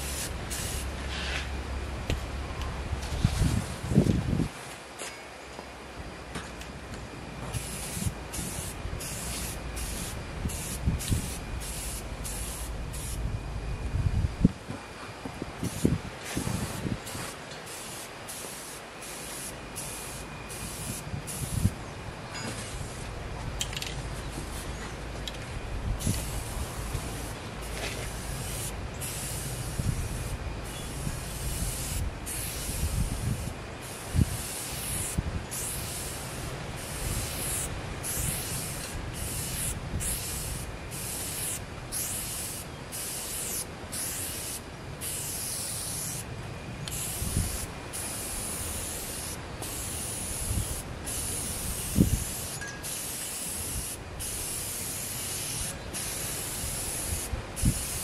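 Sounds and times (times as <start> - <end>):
spray paint can hissing: 0.0 - 1.4, 7.5 - 13.2, 15.6 - 21.7, 26.0 - 46.2, 46.9 - 58.0.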